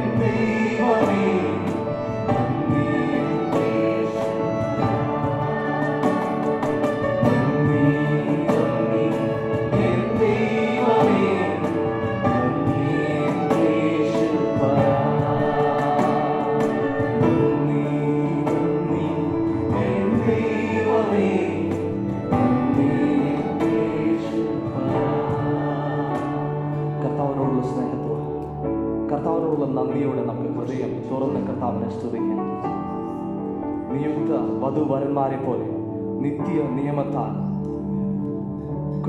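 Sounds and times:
choir singing: 0.0 - 28.6
instrumental accompaniment: 0.0 - 39.0.

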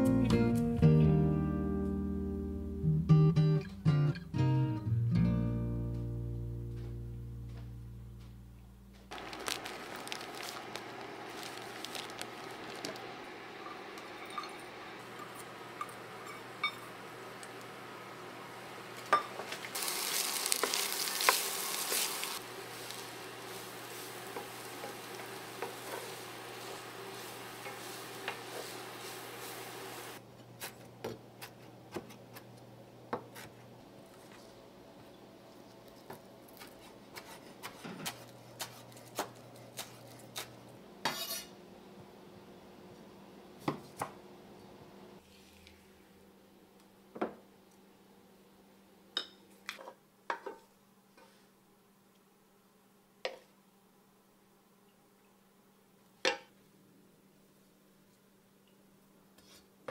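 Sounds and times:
corn kernels sizzling in a pan: 9.1 - 30.2.

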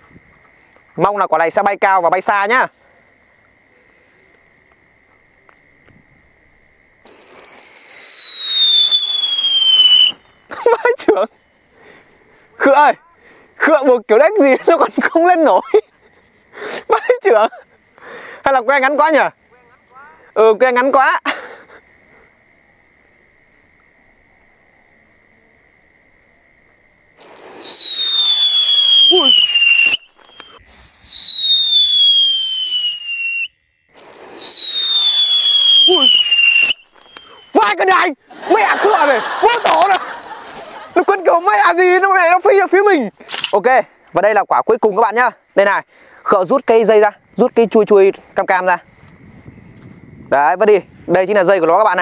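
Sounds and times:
insects chirping: 0.0 - 52.0
whistling firecracker: 7.0 - 10.6, 27.2 - 37.9.

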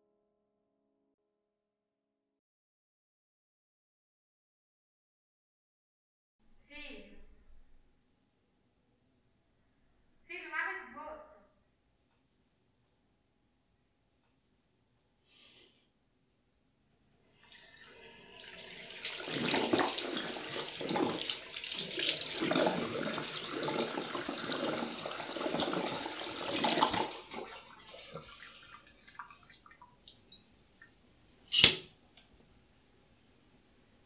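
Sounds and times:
sink tap running: 17.4 - 28.7.

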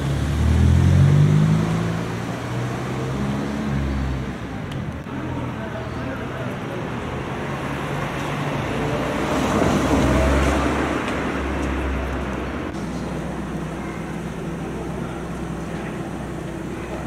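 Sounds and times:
traffic noise: 0.0 - 17.0
vehicle passing: 5.4 - 15.2.

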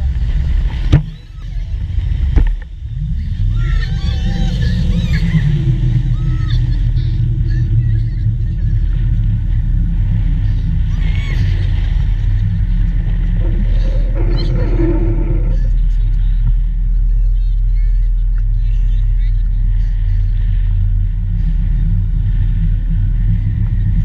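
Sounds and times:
boat engine running: 0.0 - 24.0
wind rumbling over microphone: 0.0 - 24.0
people squealing and laughing: 3.4 - 7.4, 13.4 - 16.2.

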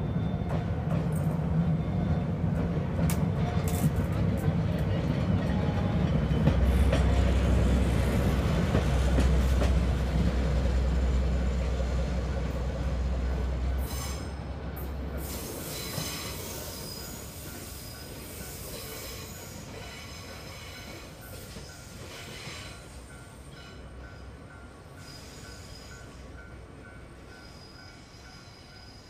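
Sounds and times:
rail noise: 0.0 - 29.0
high wheel squeal: 13.8 - 14.4, 15.2 - 22.8, 25.0 - 26.2, 27.3 - 29.0.

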